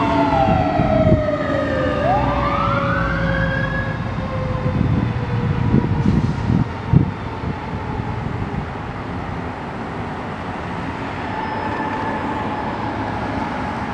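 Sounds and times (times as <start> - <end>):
lower siren tone sliding down: 0.0 - 9.0, 11.0 - 13.9
fire engine siren wailing: 0.0 - 13.9
truck engine rumbling: 0.0 - 13.9.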